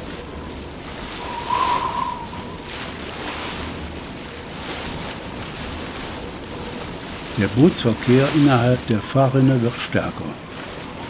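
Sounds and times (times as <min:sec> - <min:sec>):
strong gusty wind: 0:00.0 - 0:09.0
choppy waves: 0:00.0 - 0:11.0
wavering wind whistle: 0:01.1 - 0:02.9.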